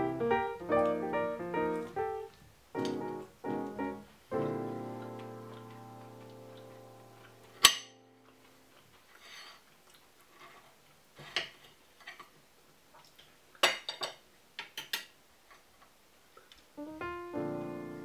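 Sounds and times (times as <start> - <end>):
piano music: 0.0 - 8.4, 16.8 - 18.0.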